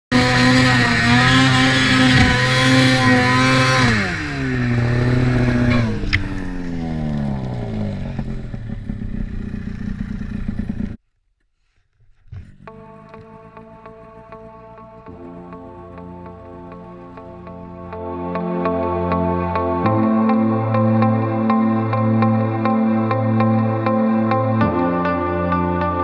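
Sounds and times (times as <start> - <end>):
snowmobile engine revving: 0.1 - 11.0, 12.4 - 17.8.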